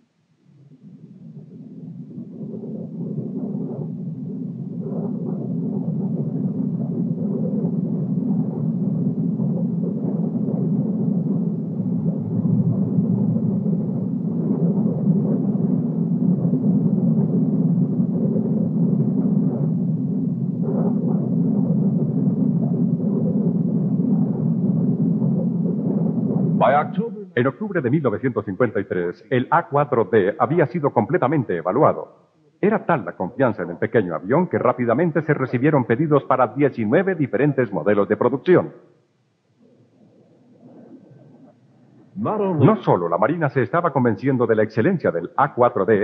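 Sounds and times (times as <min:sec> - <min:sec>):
jet aircraft rumble: 0:24.3 - 0:30.6.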